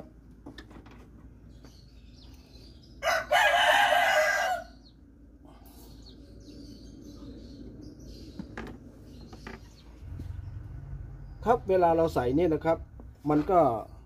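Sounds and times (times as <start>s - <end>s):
rooster crowing: 3.0s - 4.8s.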